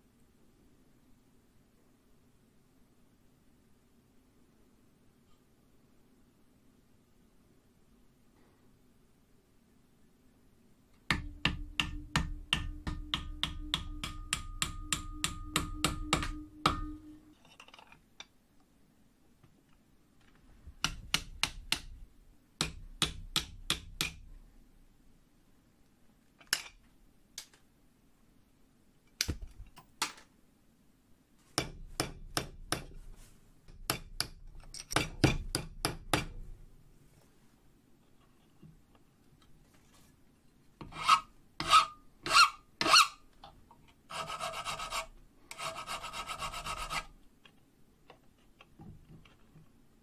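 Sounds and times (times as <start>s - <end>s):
small hammer tapping on steel: 11.1s - 17.3s, 20.8s - 22.0s, 22.6s - 24.3s, 31.6s - 33.0s, 33.7s - 36.4s
metal ringing tone: 12.8s - 17.4s.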